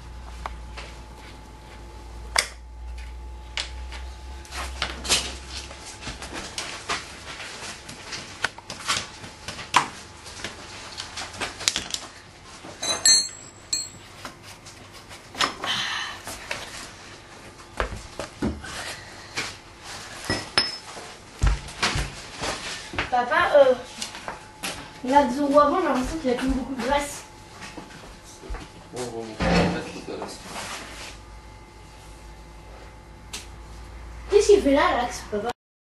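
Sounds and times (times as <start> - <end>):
metallic clinks of hand tools: 12.8 - 14.0.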